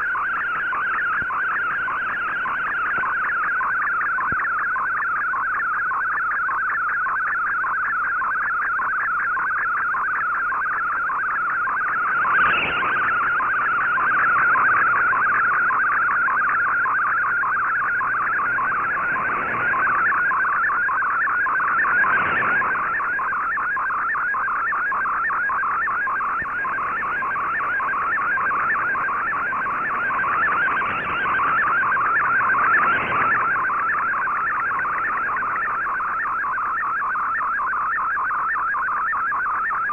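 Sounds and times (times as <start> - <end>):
static crackles: 0.0 - 39.9
warbling digital data tone: 11.2 - 36.9.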